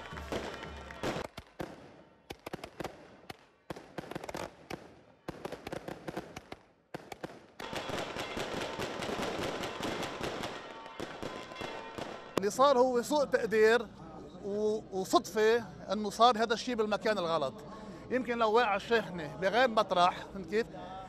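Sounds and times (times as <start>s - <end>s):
fireworks banging and crackling: 0.0s - 12.6s.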